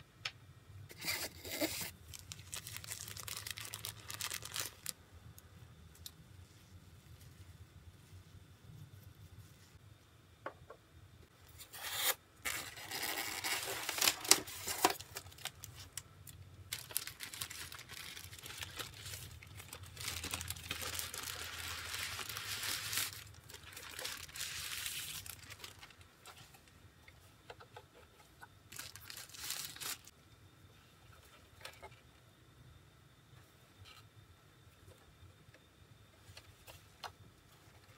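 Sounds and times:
packing wrap rustling and crinkling: 0:01.0 - 0:05.0, 0:11.8 - 0:26.6, 0:28.7 - 0:30.1.

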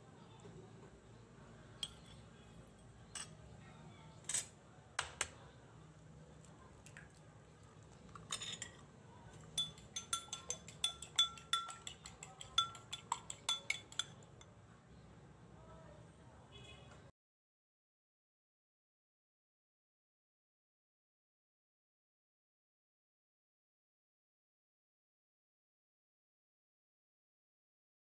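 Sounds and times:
fork clinking against bowl: 0:01.8 - 0:02.3, 0:03.1 - 0:03.4, 0:08.2 - 0:08.8, 0:09.5 - 0:14.5.

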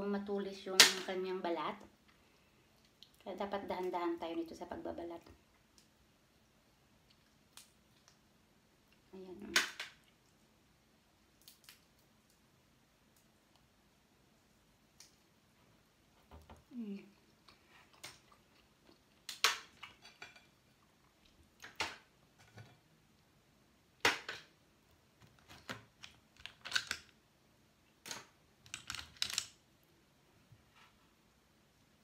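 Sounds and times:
seafood shells cracking: 0:11.3 - 0:12.4, 0:17.9 - 0:20.5, 0:25.3 - 0:27.2, 0:28.0 - 0:29.6.

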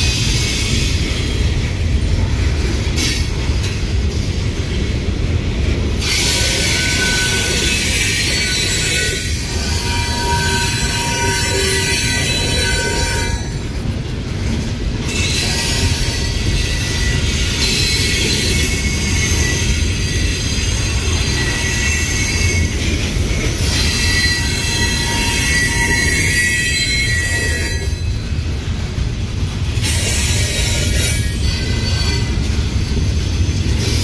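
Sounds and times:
wheel squeal: 0:06.0 - 0:13.6, 0:15.0 - 0:28.3, 0:29.8 - 0:34.0.

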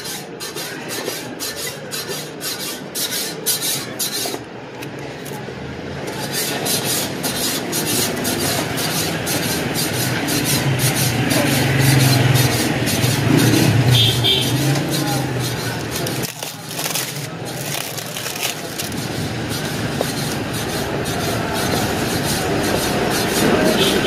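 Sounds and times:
plastic wrap crinkling: 0:15.7 - 0:19.7.

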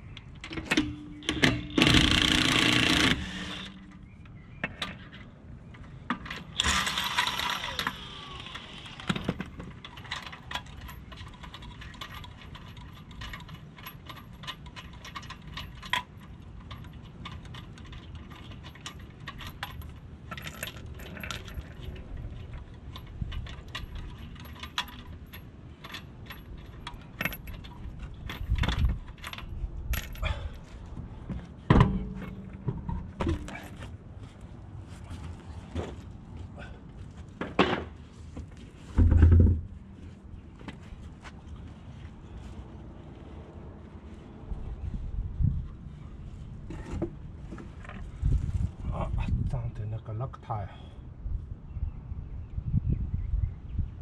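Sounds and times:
metal parts clinking: 0:06.2 - 0:30.5
loud metal clanks: 0:31.7 - 0:33.8.

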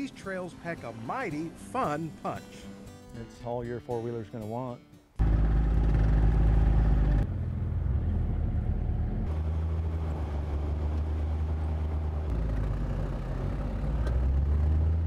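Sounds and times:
vehicle engines running: 0:05.2 - 0:15.0.

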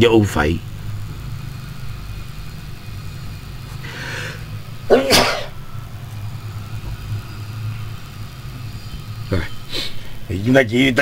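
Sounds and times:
steady low hum: 0:00.0 - 0:11.0
breathy intake: 0:03.8 - 0:05.5, 0:09.7 - 0:10.2
person sneezing: 0:04.9 - 0:05.5.

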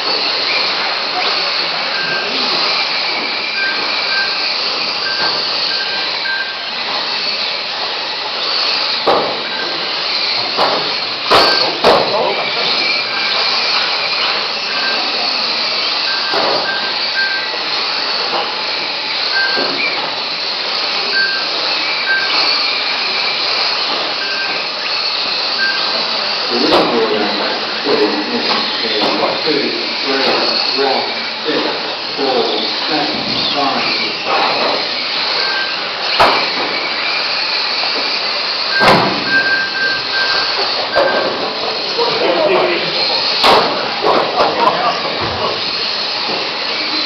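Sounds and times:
rc car motors whining: 0:00.0 - 0:47.0
thin high tone: 0:00.1 - 0:47.0
short high beeps: 0:01.8 - 0:06.6, 0:14.2 - 0:15.2, 0:16.0 - 0:17.6, 0:19.3 - 0:20.0, 0:21.1 - 0:22.6, 0:24.2 - 0:24.7, 0:25.6 - 0:26.0, 0:35.3 - 0:35.8, 0:38.7 - 0:41.5
sharp knocks: 0:09.0 - 0:09.4, 0:10.5 - 0:12.2, 0:38.8 - 0:39.3.

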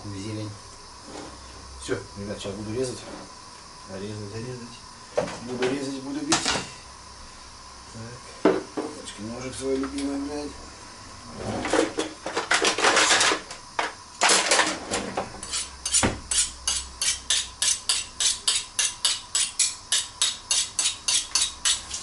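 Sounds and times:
knife sharpening scrapes: 0:15.4 - 0:22.0.

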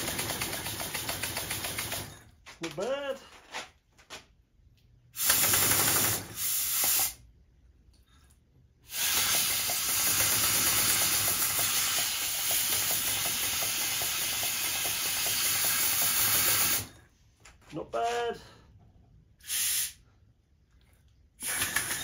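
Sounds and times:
compressed air hissing: 0:06.2 - 0:07.2, 0:08.8 - 0:16.9, 0:19.4 - 0:20.1.

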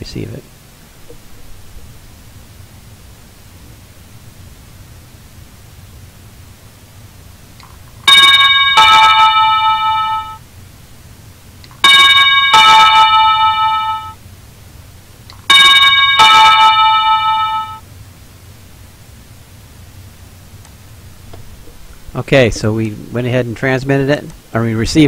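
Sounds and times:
doorbell ding-dong chime: 0:08.1 - 0:10.4, 0:11.8 - 0:14.2, 0:15.5 - 0:17.8.

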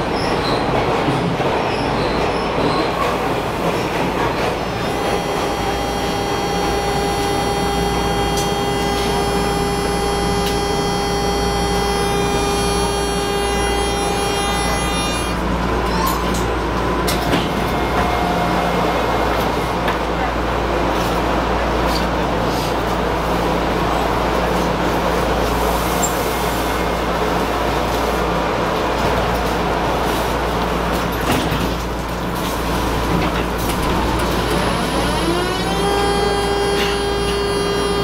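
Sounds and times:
subway car wheels rumbling: 0:00.0 - 0:38.0
multi-tone whine: 0:04.7 - 0:15.4, 0:17.0 - 0:19.6.

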